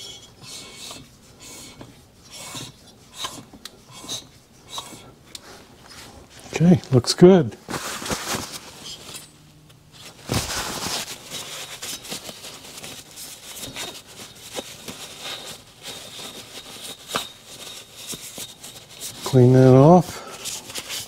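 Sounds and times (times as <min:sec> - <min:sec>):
paper towel rubbing and crinkling: 0:07.6 - 0:09.1, 0:10.0 - 0:21.0.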